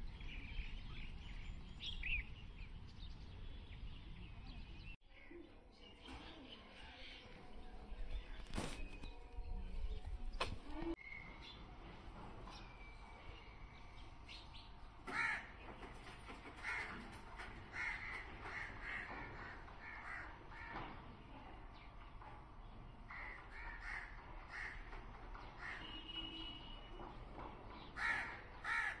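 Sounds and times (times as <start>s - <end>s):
crows cawing: 15.0s - 15.6s, 16.5s - 21.1s, 23.1s - 26.0s, 27.8s - 29.0s.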